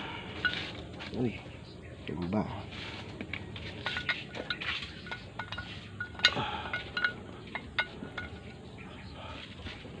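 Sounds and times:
hand tools clinking on metal: 0.3 - 1.3, 3.6 - 8.8.

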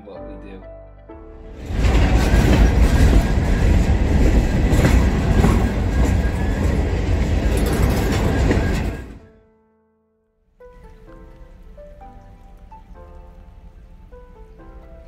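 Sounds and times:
freight train rumbling: 1.5 - 9.3.

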